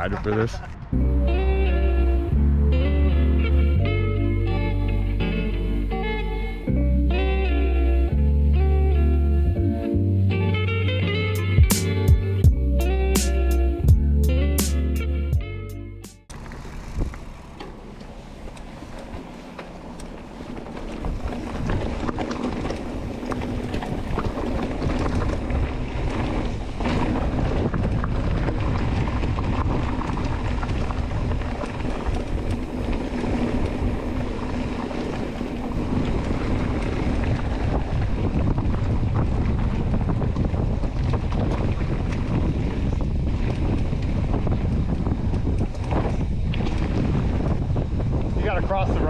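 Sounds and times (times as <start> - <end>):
wind buffeting microphone: 0.0 - 2.8, 15.3 - 49.0
bike clicks and knocks: 16.3 - 48.4.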